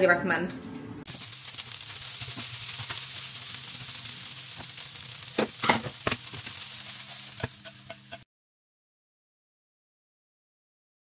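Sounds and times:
food sizzling in a frying pan: 1.1 - 8.3.

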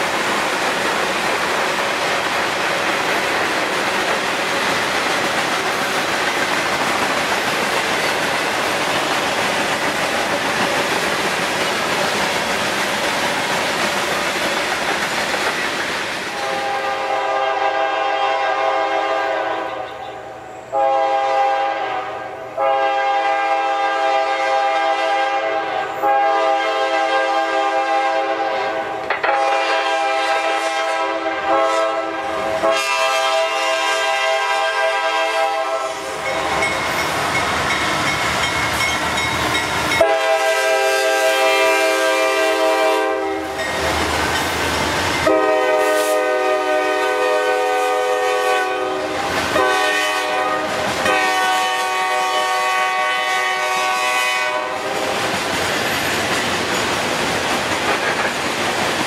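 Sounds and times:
locomotive air horn blasts: 16.4 - 36.3, 40.0 - 43.6, 45.2 - 55.0.

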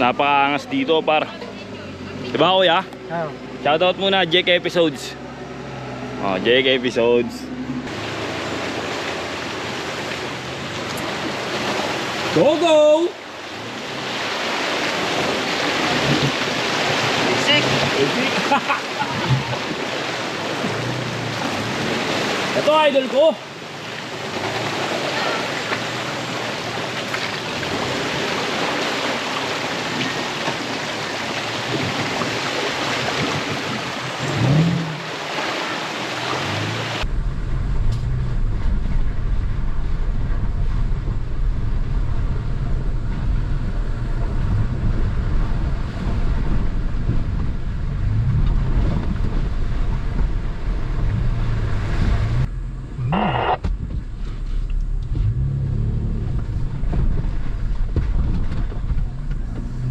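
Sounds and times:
off-road vehicle engine revving: 0.0 - 12.7, 31.8 - 59.9
rushing stream water: 0.0 - 37.1.

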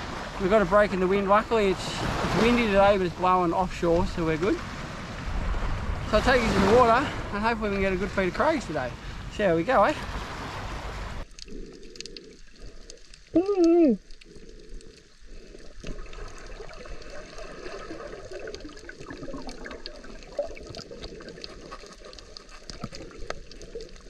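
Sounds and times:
underwater water bubbling: 10.0 - 24.0
faint clicks: 11.2 - 17.5, 20.6 - 24.0
pitched voice-like tone: 13.4 - 14.0.

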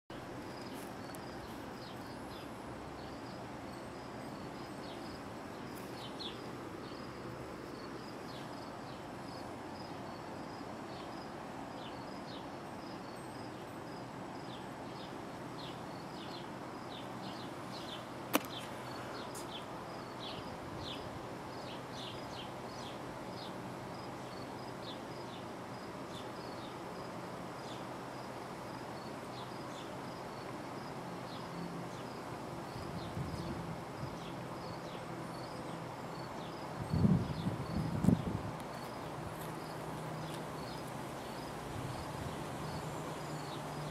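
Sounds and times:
insects chirping: 0.1 - 43.9
steady low hiss: 0.1 - 43.9
sharp click: 18.3 - 18.7.

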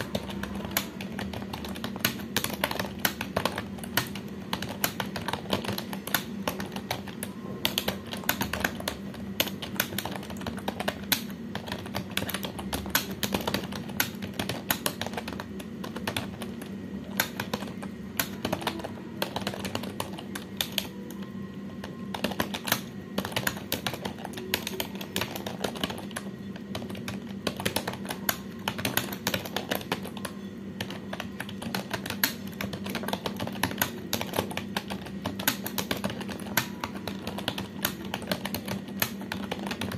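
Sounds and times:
fast keyboard typing: 0.0 - 39.9
low steady hum: 0.0 - 39.9.

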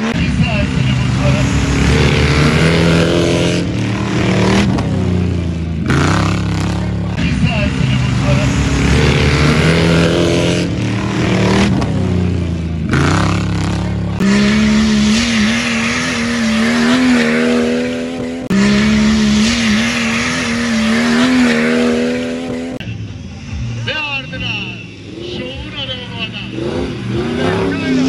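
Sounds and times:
off-road engines at high revs: 0.0 - 28.0.

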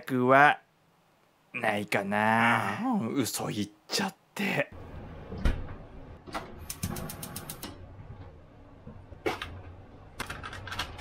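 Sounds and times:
sharp clicks: 6.6 - 7.7.

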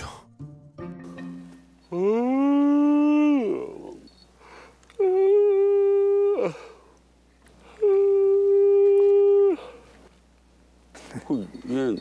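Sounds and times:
man yawning loudly: 1.9 - 4.1, 5.0 - 6.9.

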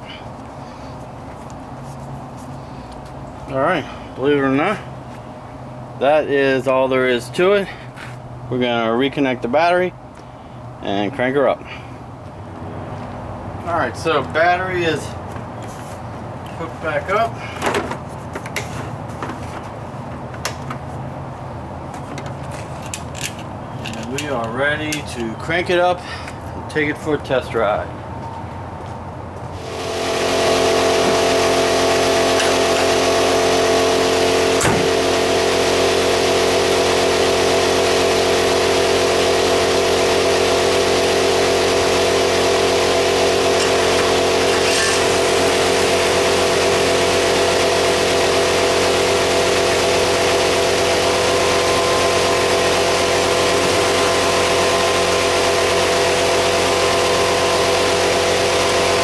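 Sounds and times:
car engine idling: 29.5 - 59.0.

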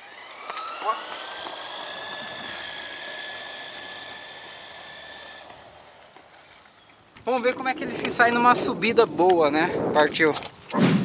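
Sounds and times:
toy truck motor whining: 0.0 - 7.2.

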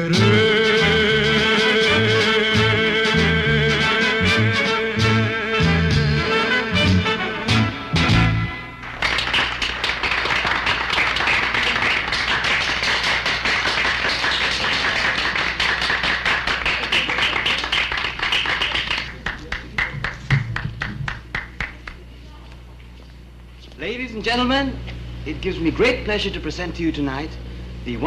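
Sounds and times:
audience applauding: 8.8 - 22.0.

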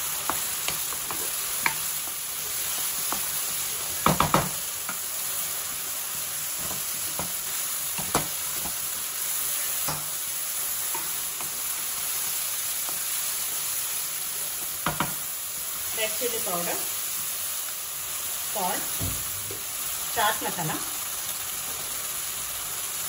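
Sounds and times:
vegetables sizzling in hot oil: 0.0 - 23.0
utensils knocking on a pan: 4.0 - 5.0, 14.8 - 15.2.

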